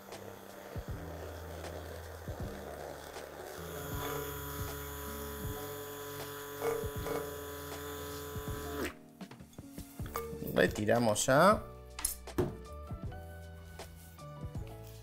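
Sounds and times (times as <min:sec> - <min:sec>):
immersion blender running: 0:00.0 - 0:09.0.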